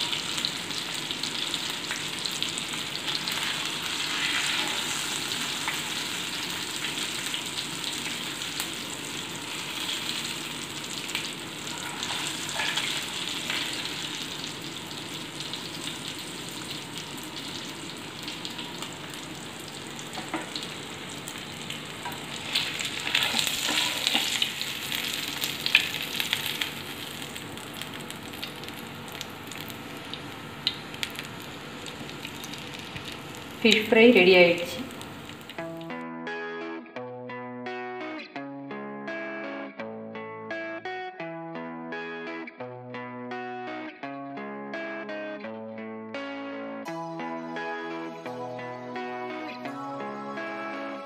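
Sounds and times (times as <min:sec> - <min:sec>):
fish sizzling in hot oil: 0:00.0 - 0:35.6
metal ladle scraping a pan: 0:11.7 - 0:13.1.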